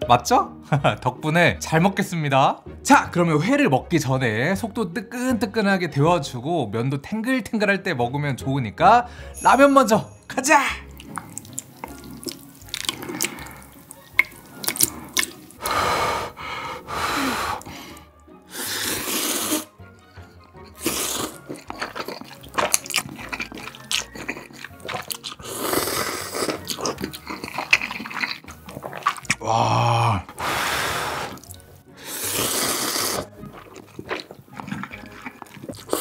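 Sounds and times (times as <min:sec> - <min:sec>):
chewing: 0:10.8 - 0:16.4, 0:17.5 - 0:36.0
person slurping noodles: 0:10.8 - 0:36.0.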